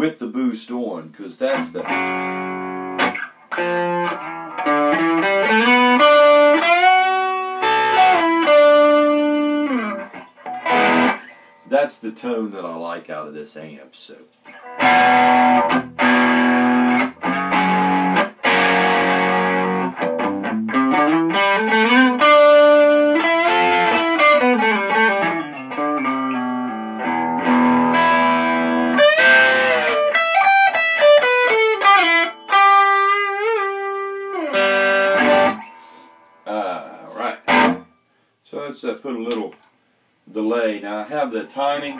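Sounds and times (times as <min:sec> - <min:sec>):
overdriven electric guitar: 0:01.6 - 0:11.6, 0:14.5 - 0:36.4, 0:37.2 - 0:37.9.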